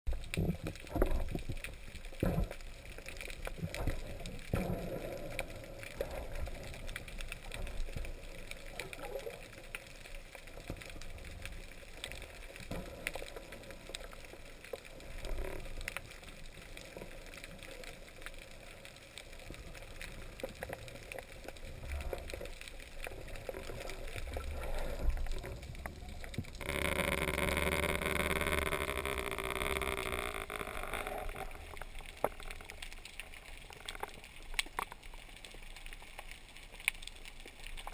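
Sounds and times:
muffled underwater rumble: 0.1s - 35.7s
faint underwater clicks: 0.1s - 37.9s.

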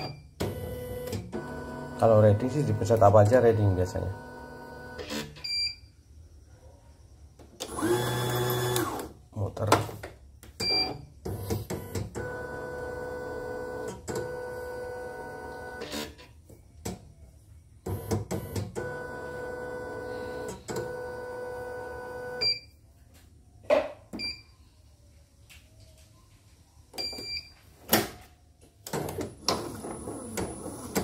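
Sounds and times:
embroidery machine motor whining: 7.6s - 9.1s.

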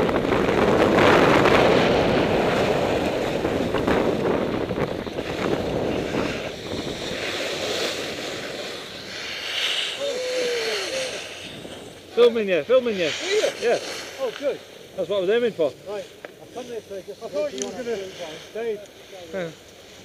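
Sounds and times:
wind buffeting microphone: 0.0s - 9.0s
skis sliding over snow: 0.4s - 20.0s.

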